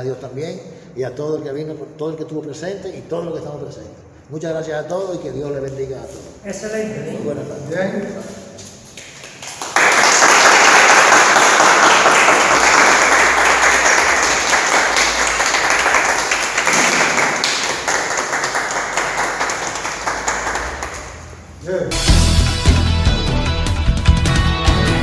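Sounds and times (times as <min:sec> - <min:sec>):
people clapping: 0:08.9 - 0:21.5.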